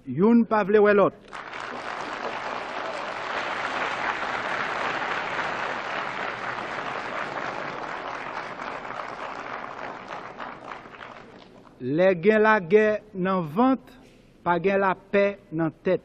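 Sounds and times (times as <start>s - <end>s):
audience applauding: 1.2s - 11.8s.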